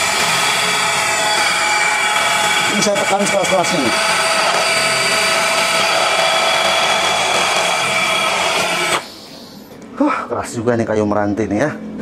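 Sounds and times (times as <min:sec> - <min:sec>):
rotary hammer boring into wood: 0:00.0 - 0:09.0.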